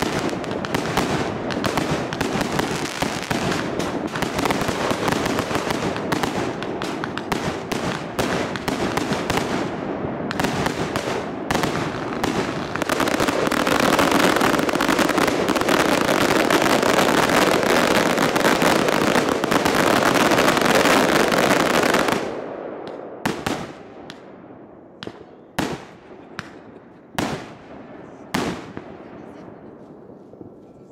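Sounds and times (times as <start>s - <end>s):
single firework bangs with echo: 0.0s - 24.4s
fireworks bangs and crackling: 0.0s - 30.9s.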